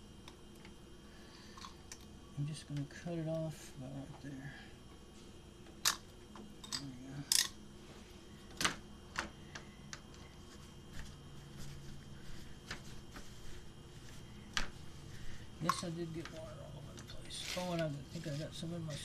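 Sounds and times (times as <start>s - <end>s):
faint low steady hum: 0.0s - 19.0s.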